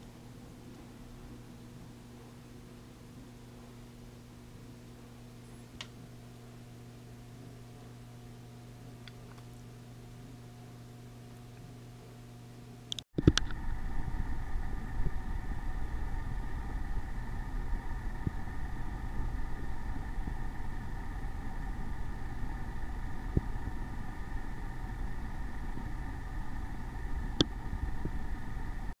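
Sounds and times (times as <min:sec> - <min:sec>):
motor humming: 0:12.8 - 0:29.0.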